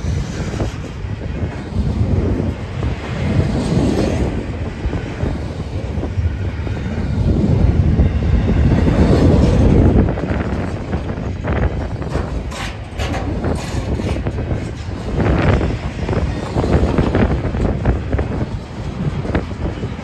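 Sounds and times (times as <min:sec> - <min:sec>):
freight train rumbling past: 0:00.0 - 0:20.0
wheels clattering on rails: 0:00.0 - 0:20.0.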